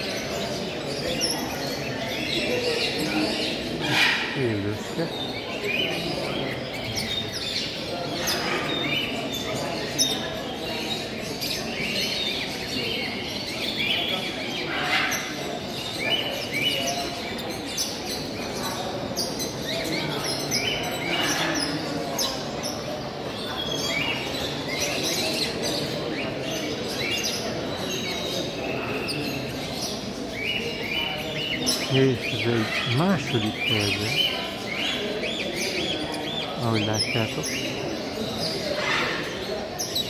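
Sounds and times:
busy exhibition hall noise: 0.0s - 40.0s
parrots chirping: 14.7s - 15.3s, 29.0s - 40.0s.

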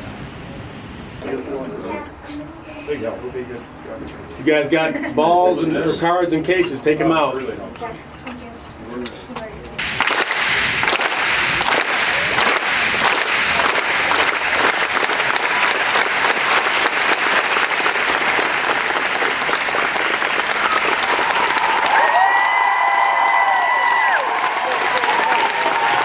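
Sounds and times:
crowd of kids applauding: 9.8s - 26.0s.

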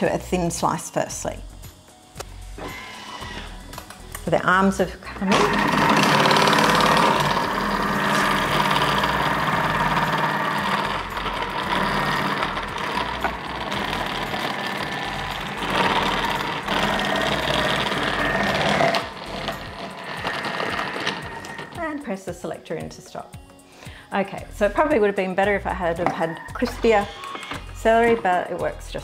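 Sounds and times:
food processor motor slicing: 2.6s - 3.6s, 5.2s - 21.8s, 26.6s - 27.8s.

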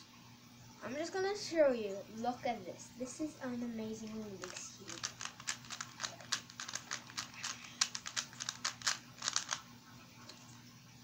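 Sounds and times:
puzzle cube clicking as twisted: 4.4s - 9.6s.

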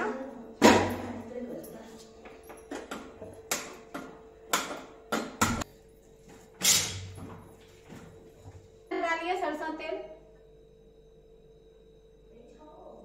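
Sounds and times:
faint steady hum: 0.0s - 13.0s.

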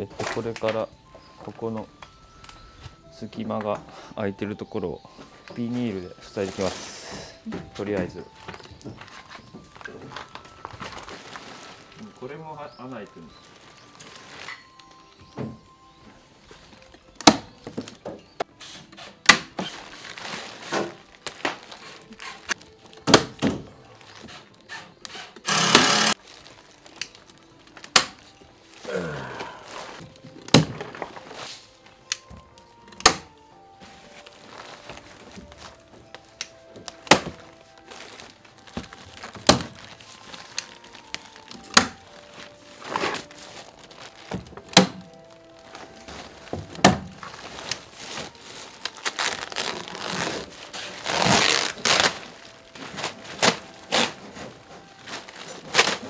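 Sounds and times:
quiet background music: 0.0s - 56.0s
plastic sheeting ripping: 9.0s - 15.2s, 18.9s - 31.8s, 33.2s - 56.0s
sharp knocks and snaps: 27.8s - 28.2s, 32.1s - 33.4s.

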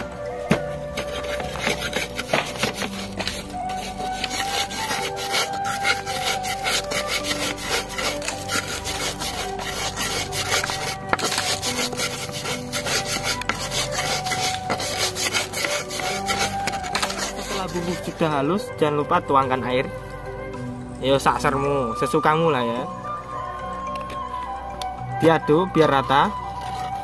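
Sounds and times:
stone pestle grinding in mortar: 0.4s - 18.5s.

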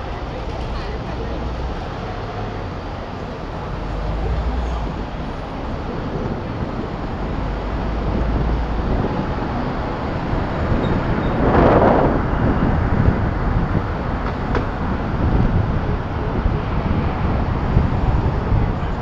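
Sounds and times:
road and traffic noise: 0.0s - 19.0s
wind rushing over microphone: 0.0s - 19.0s.

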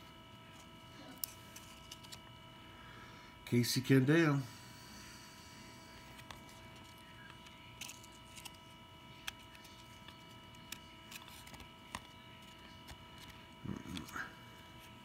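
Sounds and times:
faint steady hum: 0.0s - 15.0s
trading cards clicking: 6.1s - 13.4s.

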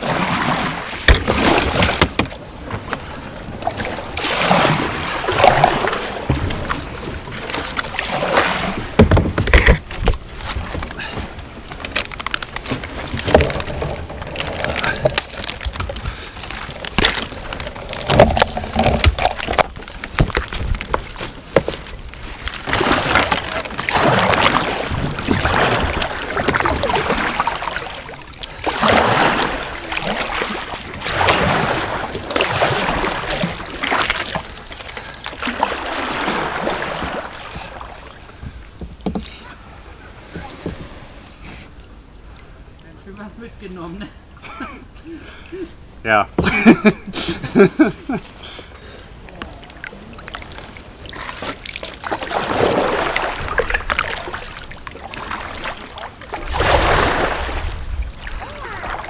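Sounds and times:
paddle splashing in river water: 0.0s - 42.5s, 46.4s - 59.0s.

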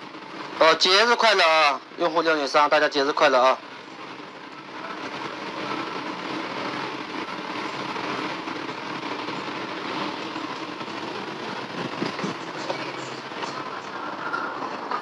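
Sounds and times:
gas burner rushing: 0.0s - 15.0s
pan simmering: 3.6s - 15.0s.

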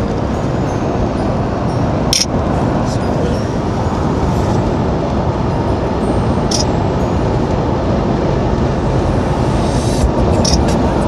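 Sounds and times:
road and wind noise: 0.0s - 11.0s
high click: 2.1s - 2.3s, 10.4s - 10.8s.

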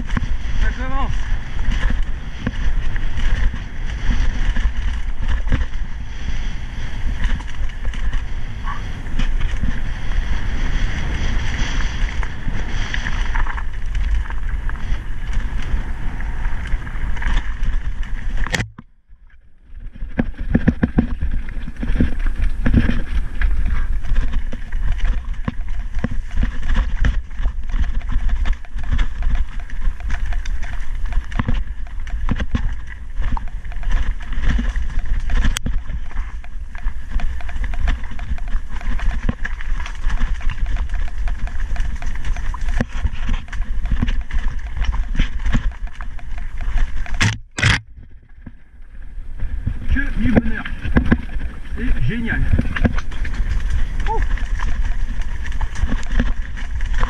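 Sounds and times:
bike rattling over stones: 0.0s - 18.7s, 19.4s - 57.0s
wind rumble on microphone: 0.0s - 57.0s
sharp click: 47.0s - 47.9s.

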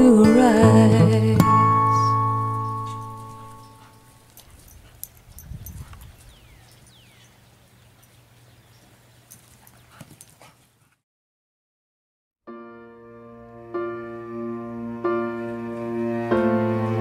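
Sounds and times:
dogs scuffling on grass: 2.6s - 11.0s.

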